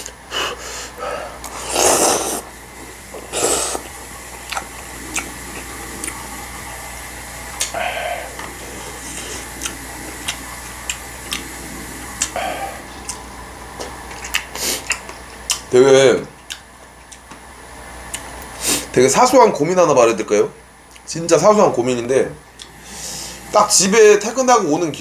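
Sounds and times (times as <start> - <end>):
chewing: 1.4 - 6.9, 7.5 - 17.4
noodles slurped: 1.4 - 13.3.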